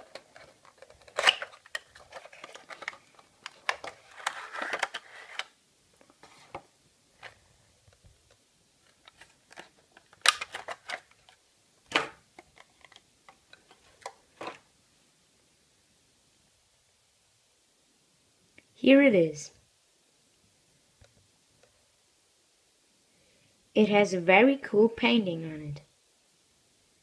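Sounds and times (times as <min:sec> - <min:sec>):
cardboard box and plastic rustling: 0:00.0 - 0:07.4, 0:08.8 - 0:11.4
plastic tray crackles: 0:00.0 - 0:07.4, 0:08.8 - 0:14.6.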